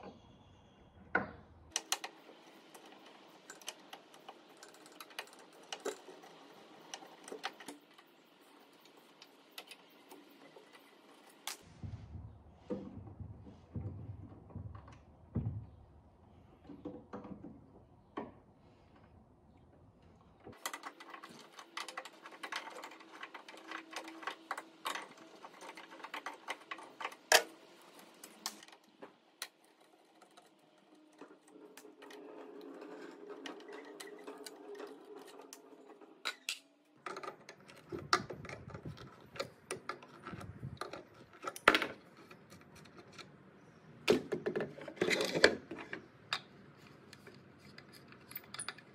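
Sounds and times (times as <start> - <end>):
metallic clicks and scrapes: 20.5 - 43.4, 44.6 - 48.9.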